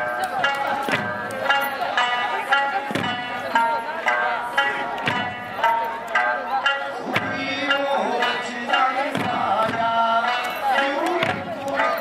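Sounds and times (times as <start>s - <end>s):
people singing: 7.0s - 12.0s.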